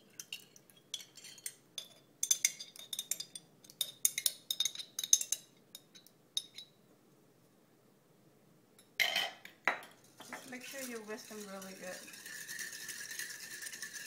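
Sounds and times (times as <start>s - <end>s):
metal spoon clinking in glass jar: 0.2s - 6.8s, 10.2s - 14.0s.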